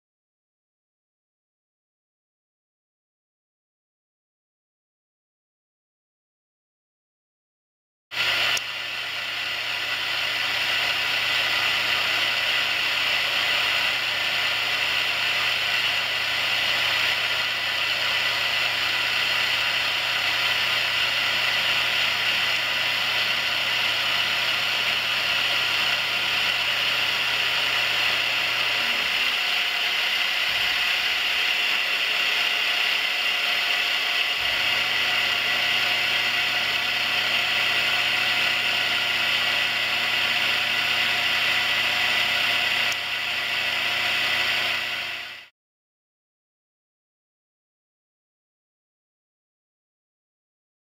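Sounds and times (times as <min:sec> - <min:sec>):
end mill cutting metal: 0:08.2 - 0:45.5.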